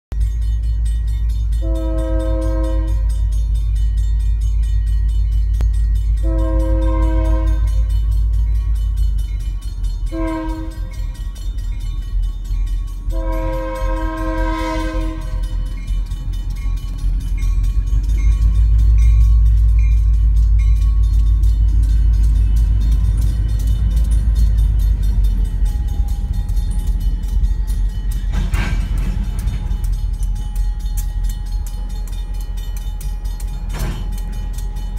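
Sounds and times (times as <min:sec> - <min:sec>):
crossing bell dinging: 0:00.1 - 0:34.9
low rumble of rolling train: 0:00.1 - 0:34.9
locomotive horn: 0:01.6 - 0:03.3, 0:06.2 - 0:08.0, 0:10.1 - 0:11.2, 0:13.0 - 0:15.7.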